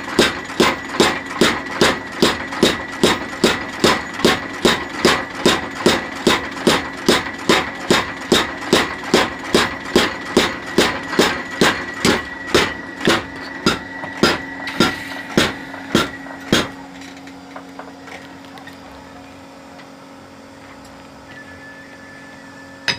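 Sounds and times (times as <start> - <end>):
power hammer ringing blows: 0.0 - 17.0
machine drive humming: 0.0 - 22.9.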